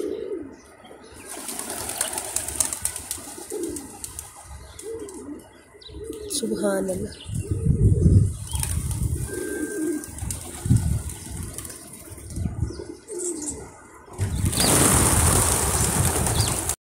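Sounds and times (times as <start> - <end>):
pigeons cooing: 0.0 - 16.8
loud rushing noise: 14.2 - 16.8.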